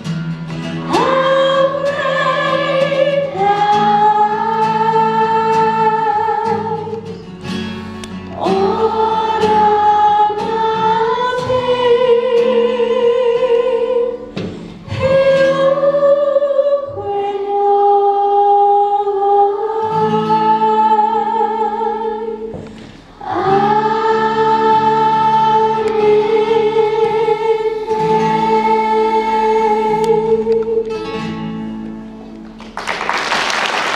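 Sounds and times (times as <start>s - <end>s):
acoustic guitar: 0.0s - 33.9s
children's choir singing: 0.7s - 7.3s, 8.2s - 31.3s
solo singer: 0.7s - 7.4s, 8.1s - 31.5s.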